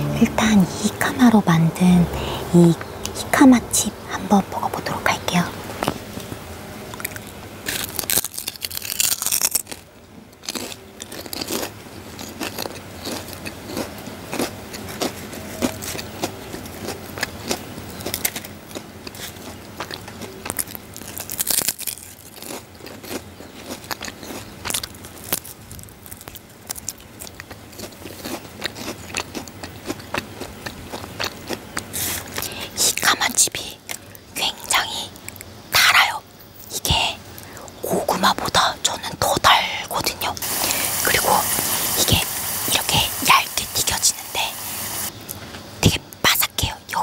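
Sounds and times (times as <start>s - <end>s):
chips crunching while chewed: 6.9s - 36.2s.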